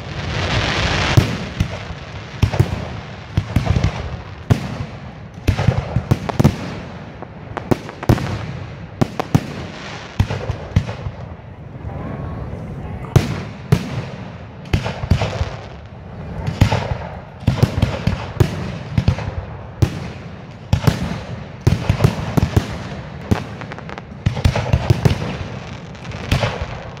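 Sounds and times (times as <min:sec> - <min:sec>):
fireworks bursting: 0:00.0 - 0:12.0, 0:13.0 - 0:27.0
continuous rumble: 0:10.3 - 0:27.0.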